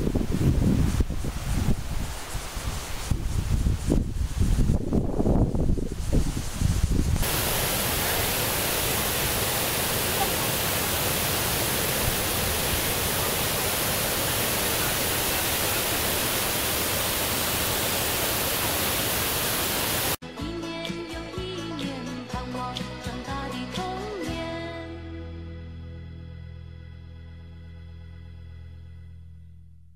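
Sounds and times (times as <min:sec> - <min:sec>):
wind buffeting microphone: 0:00.0 - 0:18.4
small waterfall pouring: 0:07.2 - 0:20.2.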